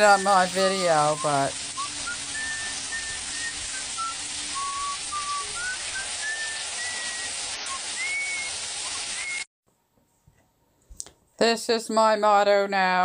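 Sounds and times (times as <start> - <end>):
faint high whistle-like tones: 0.0 - 9.5
shower water spraying: 0.0 - 9.5.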